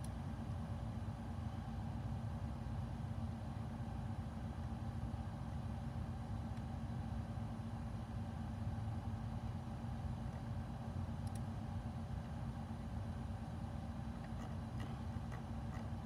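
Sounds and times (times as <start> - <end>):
low mechanical hum: 0.0 - 16.0
faint ticks: 11.2 - 11.4.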